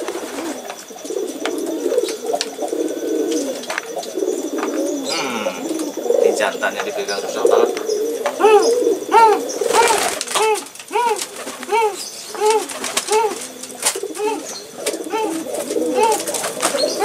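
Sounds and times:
pigeons cooing: 0.0s - 17.0s
wing flaps: 9.6s - 17.0s.

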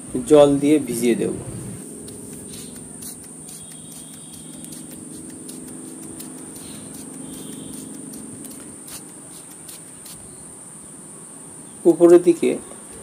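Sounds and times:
crickets trilling: 0.0s - 13.0s
spray bottle spritzing: 1.8s - 10.4s.

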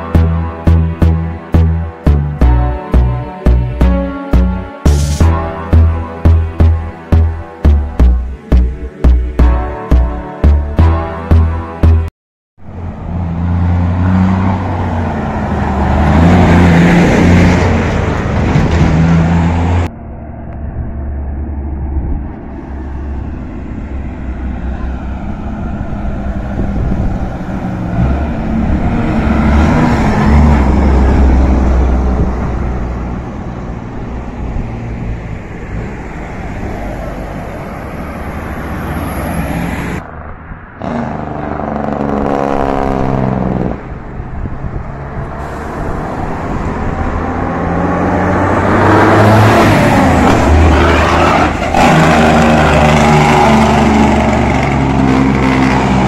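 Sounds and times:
engine revving: 0.0s - 12.1s, 13.0s - 26.4s, 40.8s - 44.0s, 44.8s - 56.0s
road traffic passing: 0.0s - 56.0s.

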